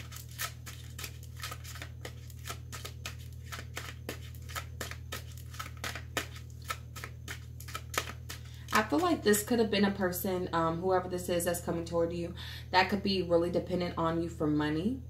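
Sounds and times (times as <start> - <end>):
cards being shuffled: 0.0 - 9.2.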